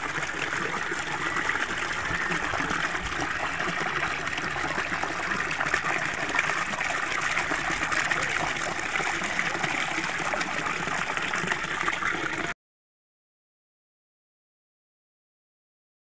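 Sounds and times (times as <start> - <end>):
fountain water splashing onto rocks: 0.0 - 12.5.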